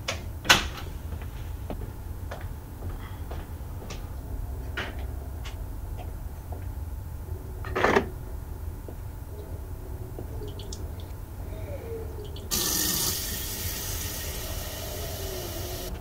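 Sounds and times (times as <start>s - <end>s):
steady low rumble: 0.0s - 12.5s.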